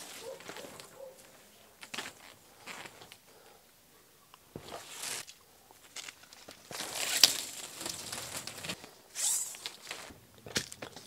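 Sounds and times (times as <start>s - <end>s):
plastic conduit rustling and scraping: 4.6s - 11.0s.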